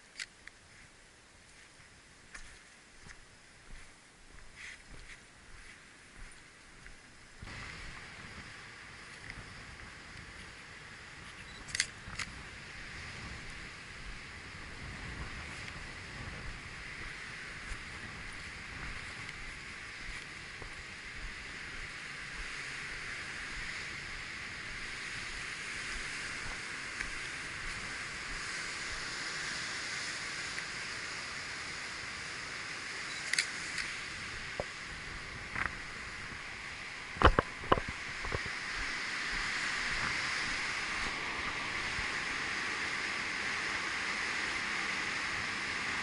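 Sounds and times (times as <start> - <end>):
water rushing: 1.5 - 46.0
camera shutter clicks: 11.5 - 12.3, 33.1 - 33.9.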